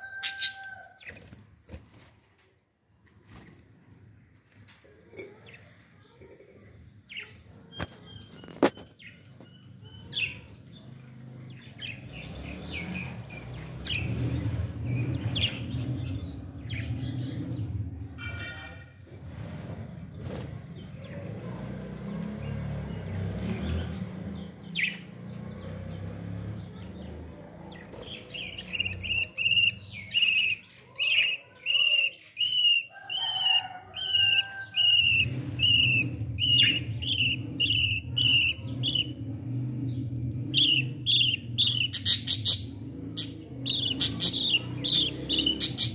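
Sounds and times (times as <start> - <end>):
budgerigars chirping: 28.0 - 39.2, 40.5 - 45.9.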